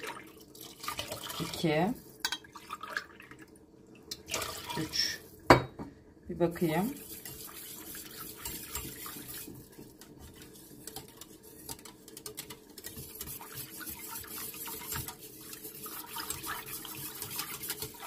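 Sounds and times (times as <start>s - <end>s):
water running from tap: 4.2s - 5.2s, 13.0s - 18.0s.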